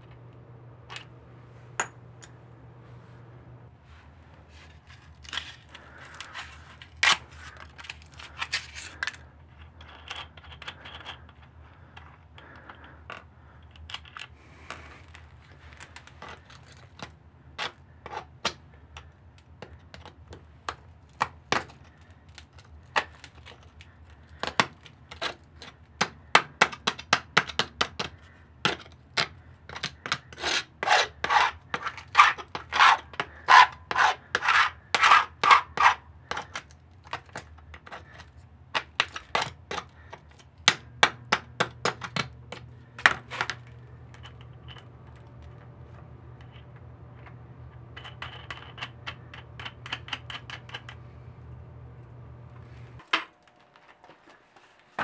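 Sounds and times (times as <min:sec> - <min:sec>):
metal scraper on concrete: 0:30.0 - 0:36.5.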